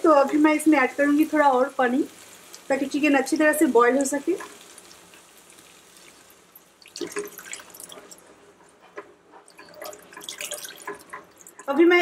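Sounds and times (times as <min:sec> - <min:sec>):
water poured into a pan: 0:04.7 - 0:08.2, 0:09.6 - 0:11.7.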